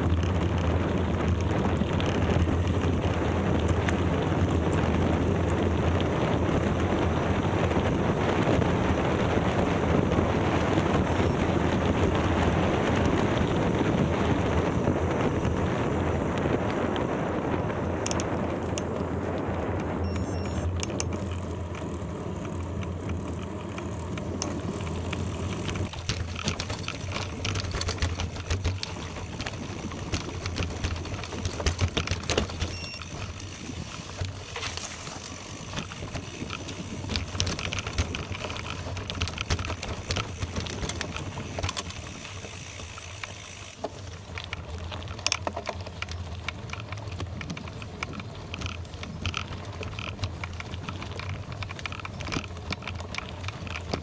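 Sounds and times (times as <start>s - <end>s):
bicycle tyres rolling on gravel: 0.0s - 54.0s
loose stones crackling: 20.6s - 54.0s.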